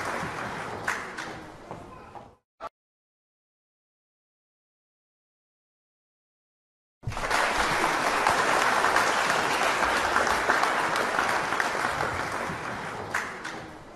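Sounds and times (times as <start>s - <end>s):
crowd applause: 0.0s - 1.1s, 7.0s - 13.8s.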